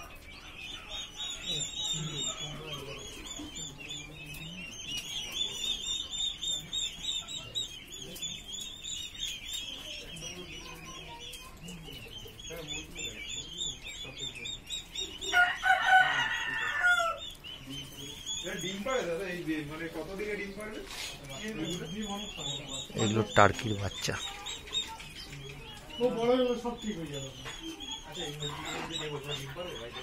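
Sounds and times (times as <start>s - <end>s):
chicks peeping: 0.0s - 30.0s
rooster crowing: 15.3s - 17.2s.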